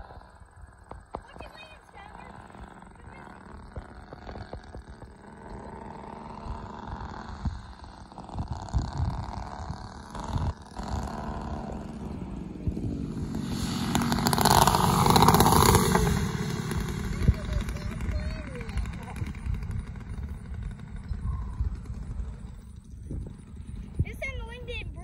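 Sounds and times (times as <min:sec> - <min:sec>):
model aircraft propellers and motors: 0:00.0 - 0:25.0
wind thumping on microphone: 0:06.4 - 0:13.1, 0:13.9 - 0:25.0.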